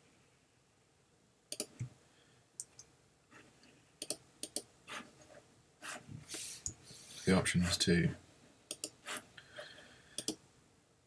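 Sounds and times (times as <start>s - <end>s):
computer mouse clicks: 1.5s - 1.9s, 4.0s - 4.7s, 8.7s - 9.2s, 10.2s - 10.4s.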